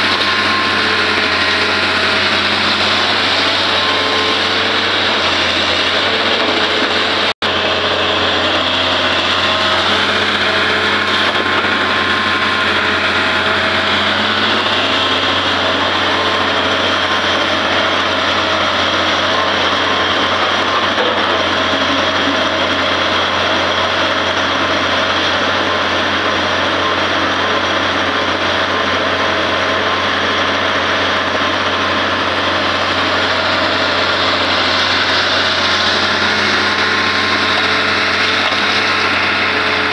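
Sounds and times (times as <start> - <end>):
high whine: 0.0 - 23.8
diesel machinery running: 0.0 - 39.9.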